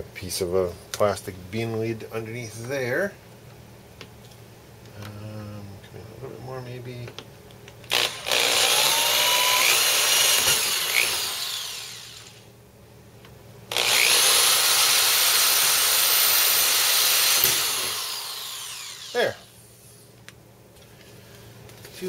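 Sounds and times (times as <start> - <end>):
electric drill boring: 7.9 - 12.4, 13.7 - 19.5.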